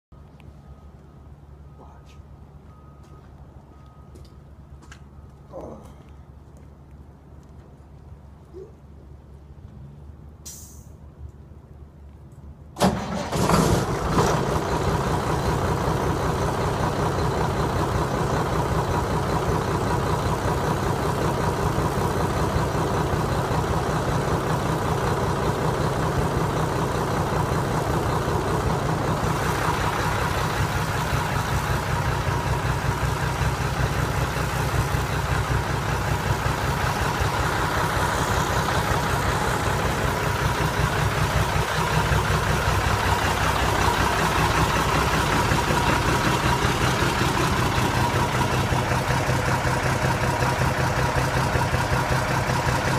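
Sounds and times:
diesel truck engine starting and idling: 12.3 - 52.9.

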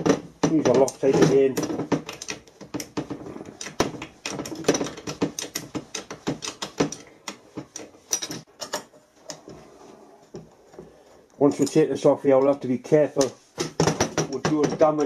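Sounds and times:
spanner clicking on metal bolts: 0.0 - 8.9.

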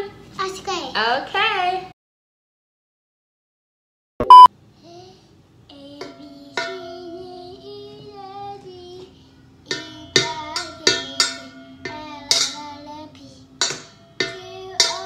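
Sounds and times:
child singing: 4.8 - 15.0
wooden spoon knocking steel bowl: 6.0 - 7.0, 9.7 - 12.9, 13.6 - 15.0.

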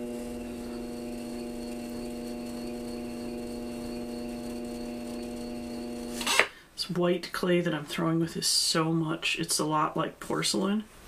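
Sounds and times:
pottery wheel motor humming: 0.0 - 6.5.

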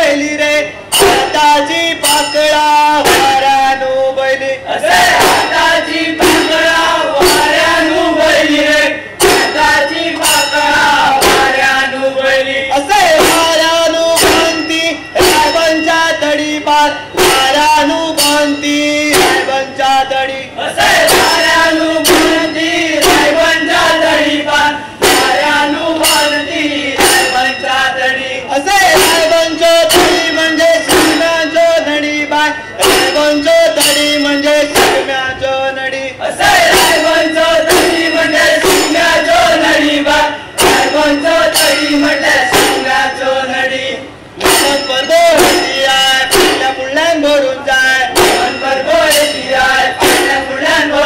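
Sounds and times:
drum strokes: 0.0 - 51.0
men singing in unison: 0.0 - 51.0
small hand cymbals: 9.2 - 11.6, 13.2 - 19.8, 29.0 - 35.1, 36.7 - 43.4, 44.4 - 46.9.

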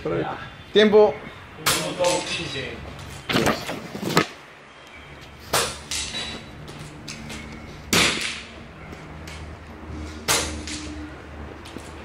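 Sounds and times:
sharp ringing bangs: 7.9 - 8.9, 10.2 - 11.1.

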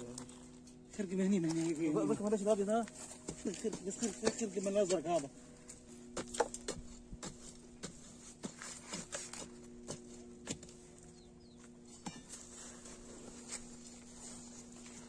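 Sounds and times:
steady low hum: 0.0 - 15.0
rod scraping stony soil: 6.2 - 10.8, 12.0 - 15.0.

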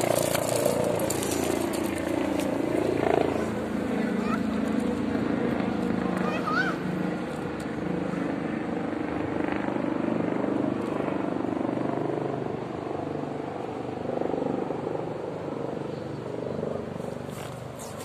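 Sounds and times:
vehicle engine running: 0.0 - 8.7.

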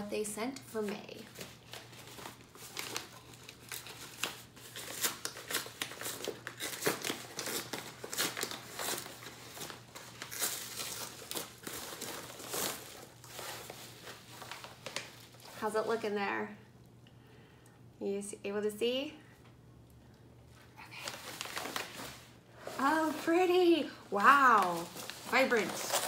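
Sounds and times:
plastic mailer crinkling: 0.8 - 15.6, 20.9 - 26.0.

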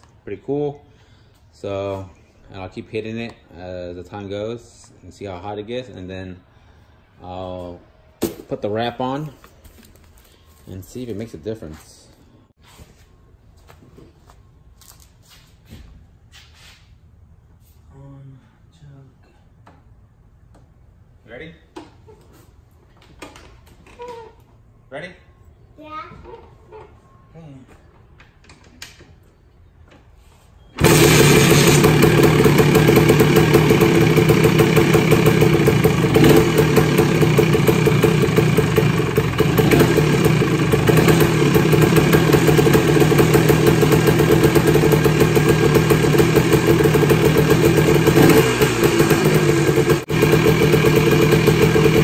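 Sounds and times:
two-stroke engine starting and idling: 30.8 - 52.0.

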